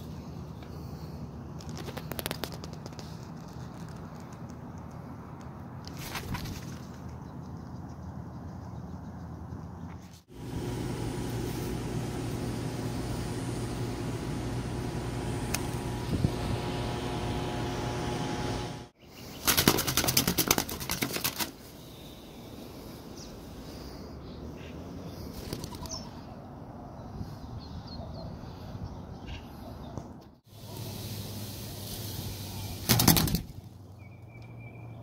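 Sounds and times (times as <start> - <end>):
bird wings flapping rapidly: 5.9 - 7.1, 19.4 - 21.6, 25.3 - 26.0, 32.8 - 33.6
steady machine hum: 10.3 - 19.0.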